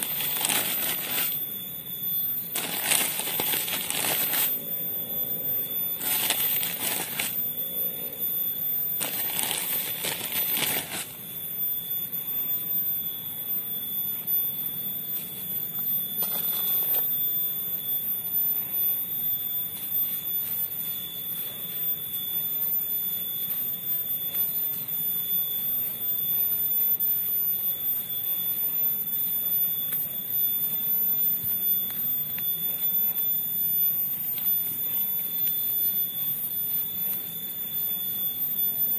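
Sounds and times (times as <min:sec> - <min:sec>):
hand trowel scraping soil: 0:00.0 - 0:01.4, 0:02.6 - 0:04.5, 0:06.0 - 0:07.4, 0:09.0 - 0:11.1
steady high-pitched whine: 0:00.0 - 0:38.9.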